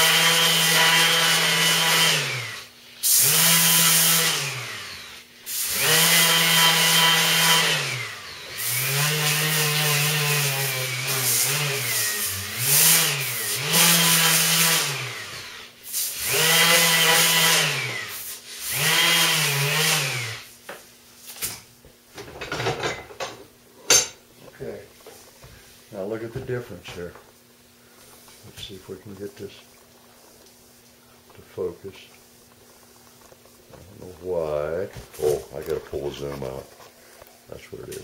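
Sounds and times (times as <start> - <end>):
electric sander whirring: 0.0 - 20.5.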